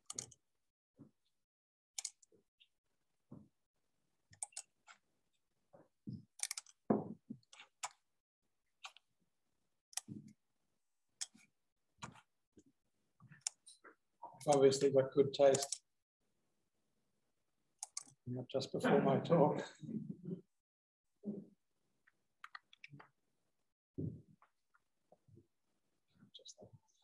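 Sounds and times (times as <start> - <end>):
mouse and keyboard clicks: 0.0 - 0.4, 2.0 - 2.3, 4.3 - 5.0, 6.4 - 6.8, 8.8 - 9.0, 15.5 - 15.8, 17.8 - 18.2, 22.4 - 23.1.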